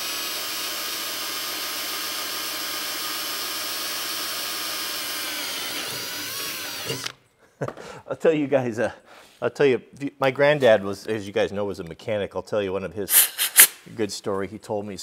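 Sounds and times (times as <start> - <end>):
cordless drill boring into metal: 0.0 - 7.2.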